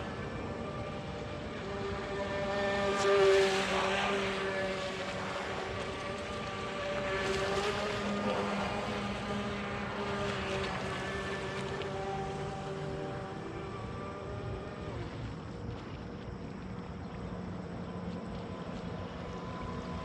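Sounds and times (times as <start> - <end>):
electric motor whining: 0.0 - 15.2.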